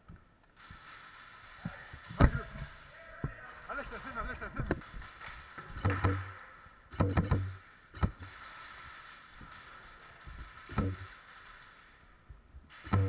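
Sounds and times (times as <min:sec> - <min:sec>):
airsoft gunfire bursts: 0:04.7 - 0:11.8.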